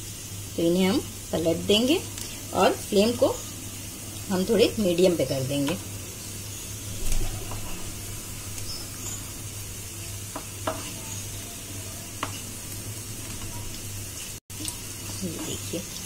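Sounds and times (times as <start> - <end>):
fritters sizzling in oil: 0.0 - 16.0
spatula tapping and scraping pan: 10.3 - 11.0, 12.2 - 12.4.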